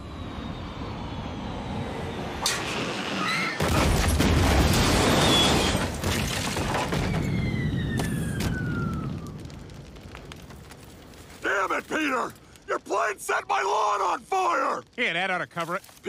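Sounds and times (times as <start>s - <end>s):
falling whine: 0.0s - 5.8s
fire burning: 0.0s - 16.0s
loud crash and explosion: 3.6s - 11.3s.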